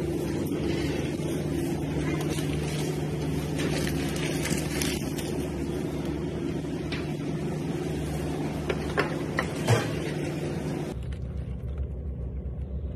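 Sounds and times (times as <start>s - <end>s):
low machine hum: 0.0s - 12.9s.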